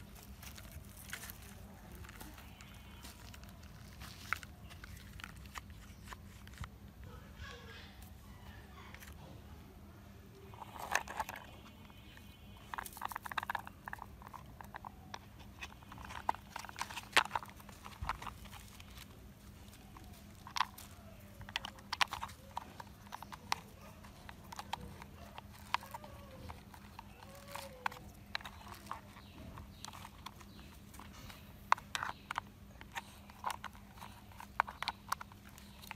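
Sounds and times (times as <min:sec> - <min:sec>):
plastic toy parts clicking: 0:10.4 - 0:35.9.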